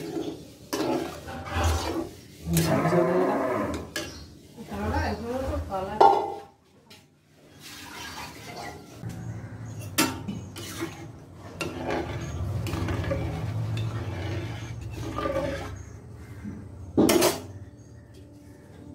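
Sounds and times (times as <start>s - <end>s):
metal ladle scraping pan: 0.0s - 6.5s, 7.4s - 9.0s, 9.7s - 16.3s
liquid sloshing: 7.4s - 9.0s.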